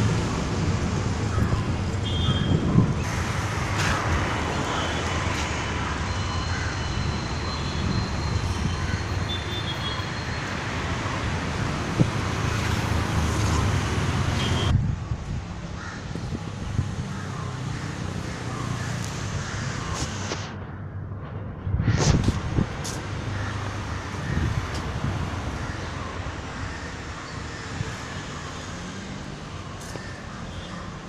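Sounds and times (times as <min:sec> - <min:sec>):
street traffic rumble: 0:00.0 - 0:31.0.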